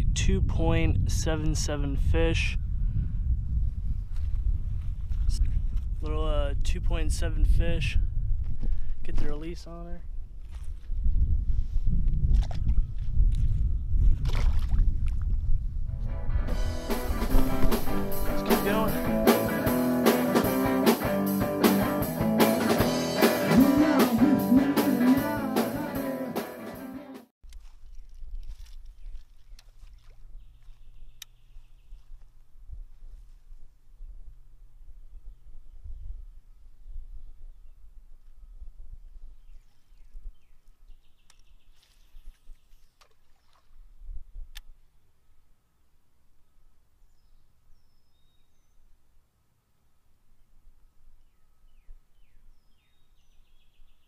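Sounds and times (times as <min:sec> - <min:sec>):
wind rumbling on microphone: 0:00.0 - 0:19.3, 0:27.5 - 0:44.9.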